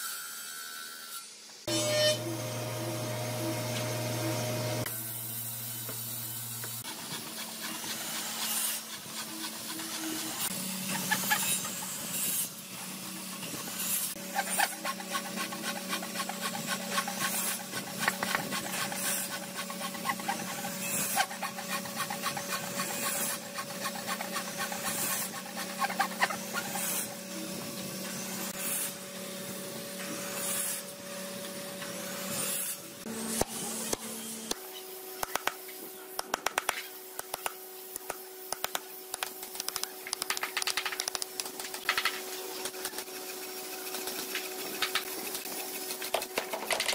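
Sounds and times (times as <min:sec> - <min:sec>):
band saw humming: 0:01.7 - 0:28.6
saw blade rasping through wood: 0:06.8 - 0:27.3, 0:42.0 - 0:46.9.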